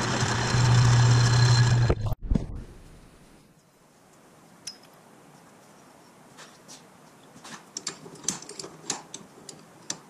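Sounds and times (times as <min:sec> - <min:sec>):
metal parts clicking: 0:07.8 - 0:10.0.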